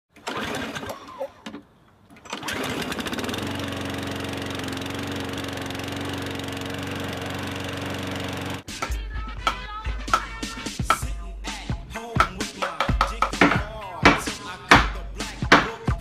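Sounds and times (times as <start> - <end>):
lawn mower engine running: 0.1 - 11.0, 12.2 - 15.8
knocks: 12.2 - 15.9.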